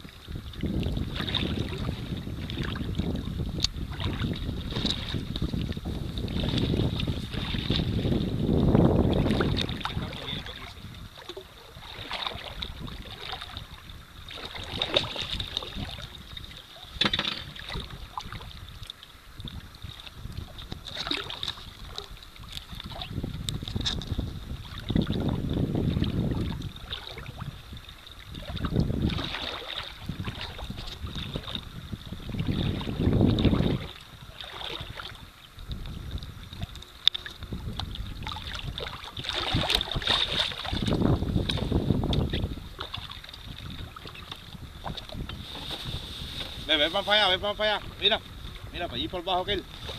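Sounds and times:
water lapping at boat hull: 0.0s - 49.9s
wind buffeting microphone: 0.0s - 49.9s
sharp water splashes: 9.0s - 18.6s, 20.8s - 23.2s, 28.3s - 31.6s, 32.3s - 35.3s, 38.2s - 48.8s.

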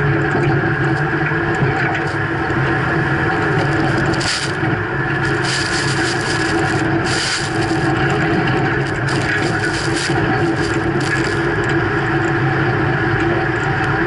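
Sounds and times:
plow blade grinding through snow: 0.0s - 14.0s
truck engine humming under load: 0.0s - 14.0s
snow spray hissing: 5.2s - 11.6s.

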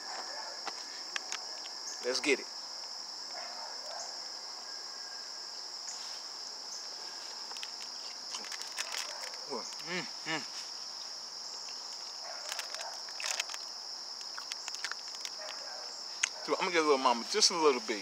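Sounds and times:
high-pitched insect drone: 0.0s - 18.0s
snack wrapper crinkling: 7.5s - 9.9s, 11.9s - 16.4s.

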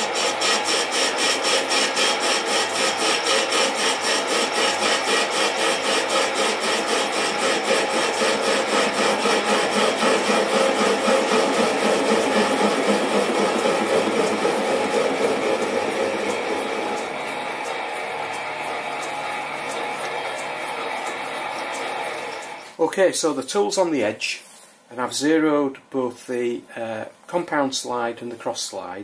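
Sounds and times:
lathe cutting metal scraping: 0.0s - 22.7s.

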